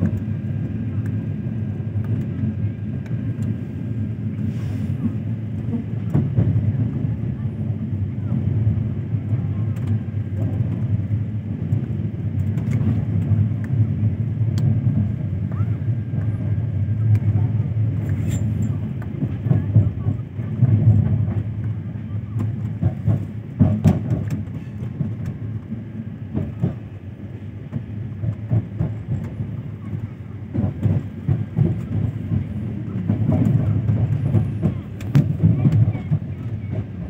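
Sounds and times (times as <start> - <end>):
train rumble inside coach: 0.0 - 37.0
wheels knocking on track: 22.4 - 26.9, 27.7 - 37.0.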